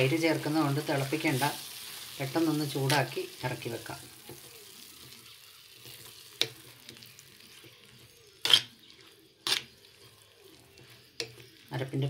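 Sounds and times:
faint hiss of heating mixture: 0.0 - 12.0
spoon stirring paste in a pan: 0.1 - 12.0
spoon clacking against pan: 4.2 - 11.7.

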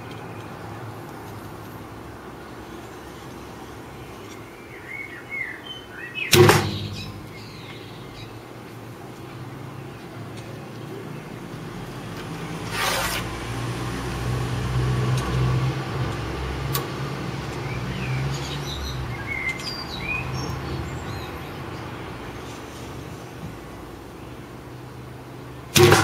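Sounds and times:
birds chirping: 0.0 - 12.2, 16.2 - 25.7
vehicle engine passing: 11.4 - 22.8
short rustle: 12.6 - 13.4.

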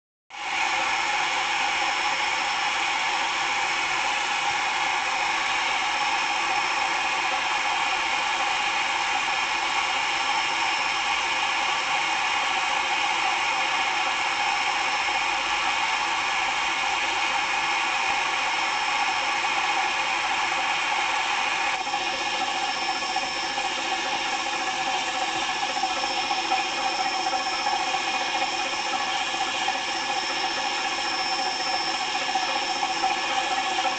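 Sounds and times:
toy train motor whirring: 21.8 - 33.9.

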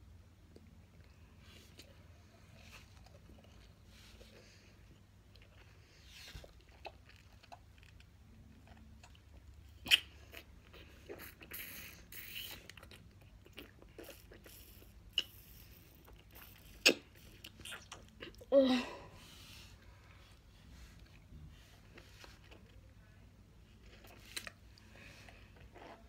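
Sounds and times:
wet chewing mouth noises: 0.5 - 18.5, 23.7 - 26.0
sharp mouth clicks: 9.8 - 10.1.

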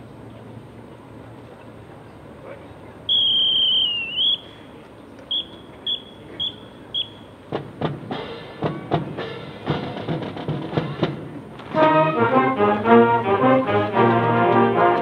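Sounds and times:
whistle blasts: 3.1 - 4.6, 5.3 - 7.4.

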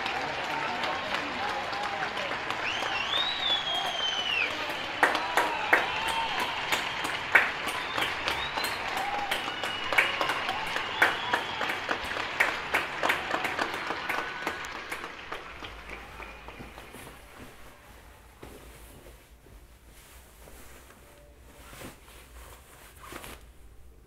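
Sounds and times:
crowd clapping: 0.0 - 17.6
whistles: 2.6 - 12.2.

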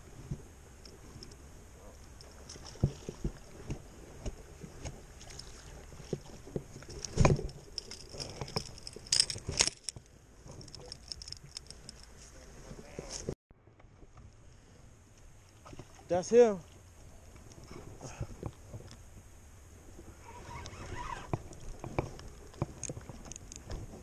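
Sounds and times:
rod and reel clicks: 6.8 - 12.3, 20.5 - 23.9.

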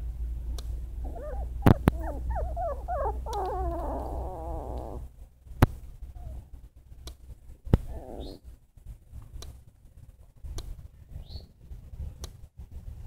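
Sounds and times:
puppies whining and squealing: 1.0 - 5.1, 7.9 - 8.4
sharp clicks: 3.3 - 4.9.

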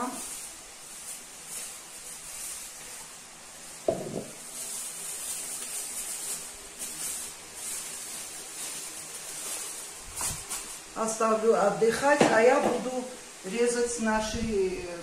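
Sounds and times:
plastic bag rustling and crinkling: 0.0 - 15.0
dull knock on plastic bowl: 3.9 - 4.3.

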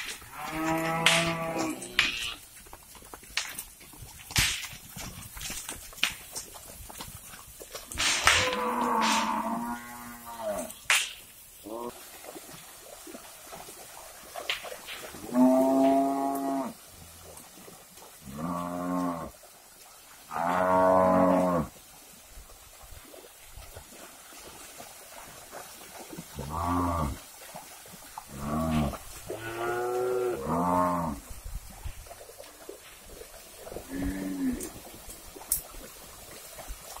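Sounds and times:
cattle mooing: 0.3 - 2.4, 8.1 - 10.8, 15.2 - 16.8, 28.3 - 31.2.

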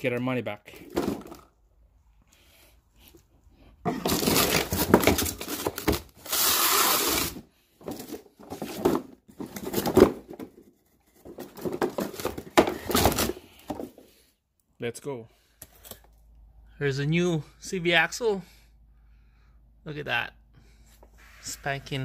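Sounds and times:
cardboard rubbing and scraping: 3.9 - 10.0.

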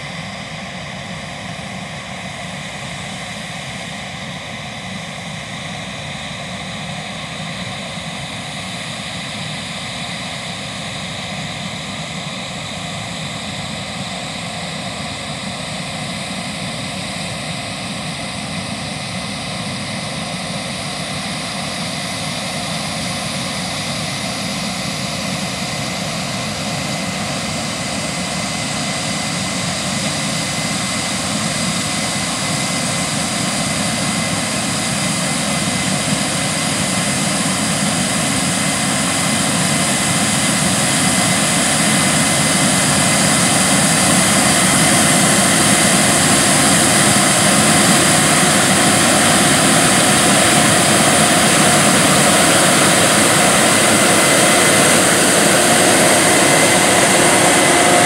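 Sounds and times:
combine harvester roaring: 26.3 - 58.0.

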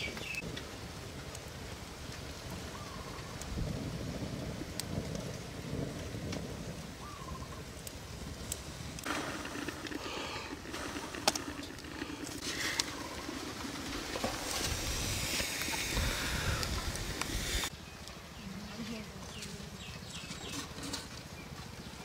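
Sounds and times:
wood fire crackling: 0.0 - 22.0
water boiling in a pot: 7.9 - 17.7.

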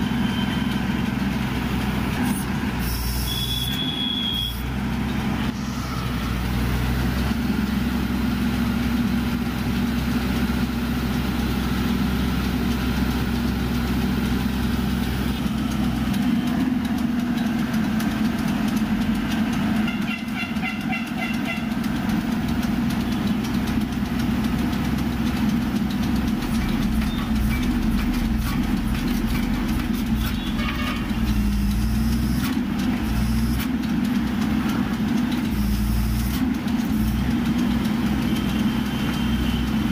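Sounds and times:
diesel engine running: 0.0 - 39.9.

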